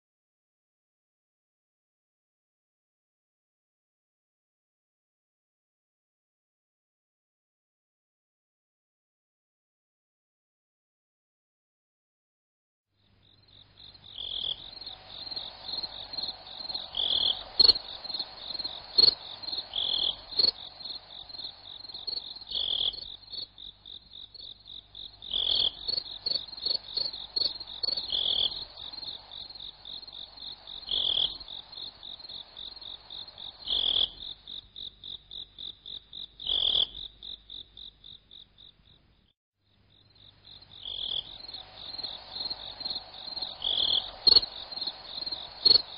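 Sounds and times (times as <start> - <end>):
cricket-like insect trill: 13.2 - 39.3, 39.9 - 45.9
loud insect chirp: 13.2 - 39.3, 39.9 - 45.9.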